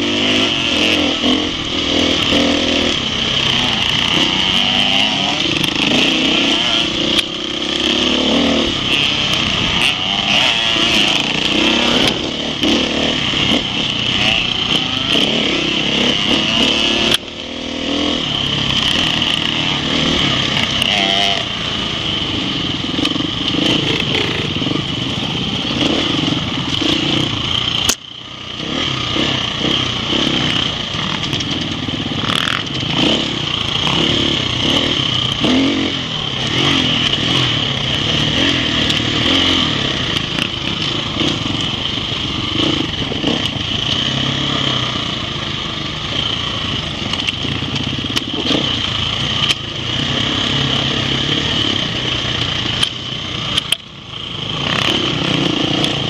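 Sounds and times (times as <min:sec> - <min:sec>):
motorcycle engine revving: 0:00.0 - 0:56.0
sharp click: 0:27.8 - 0:28.1, 0:52.8 - 0:53.9.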